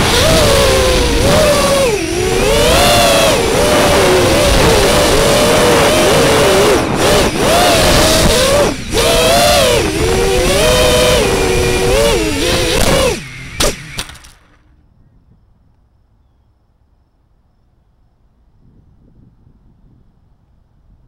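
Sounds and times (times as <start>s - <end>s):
quadcopter motors whining: 0.0s - 14.7s.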